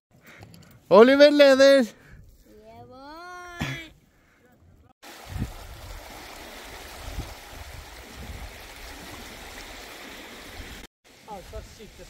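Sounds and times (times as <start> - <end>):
rushing river water: 5.0 - 12.0.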